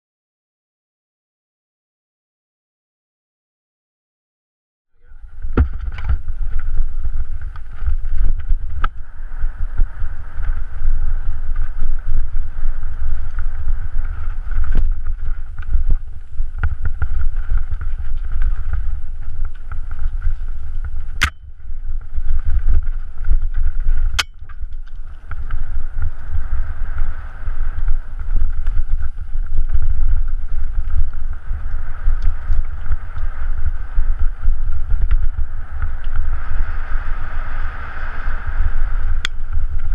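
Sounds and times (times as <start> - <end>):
wind buffeting microphone: 5.0 - 39.9
sharp knocks: 5.5 - 6.2
bike clicks: 13.0 - 36.4.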